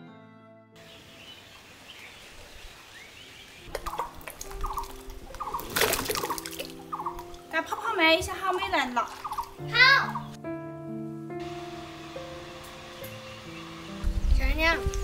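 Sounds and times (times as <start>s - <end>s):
faint birds chirping: 0.8s - 10.4s, 11.4s - 14.8s
chickens clucking: 3.7s - 7.4s, 9.1s - 9.6s
fruit splashing into water: 3.7s - 7.4s, 9.0s - 9.6s.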